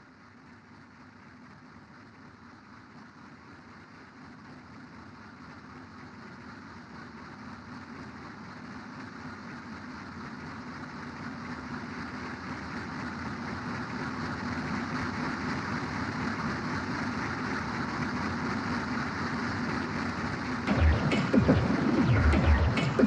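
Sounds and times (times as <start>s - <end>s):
industrial machine rumble: 19.6s - 23.0s
low hum: 19.8s - 23.0s.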